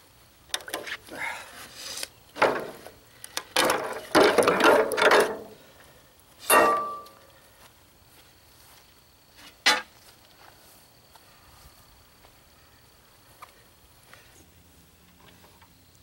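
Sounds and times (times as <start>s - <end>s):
metal clank with ring: 6.4s - 7.2s.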